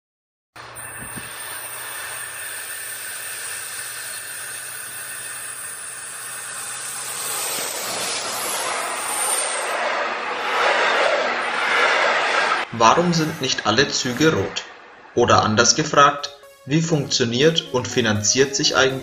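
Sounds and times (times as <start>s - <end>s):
train running on rails: 0.6s - 16.7s.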